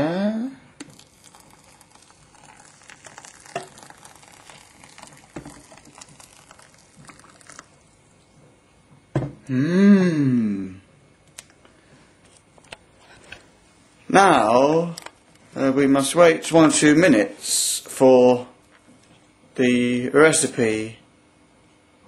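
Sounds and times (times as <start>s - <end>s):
water hissing on couscous: 0.8s - 8.2s.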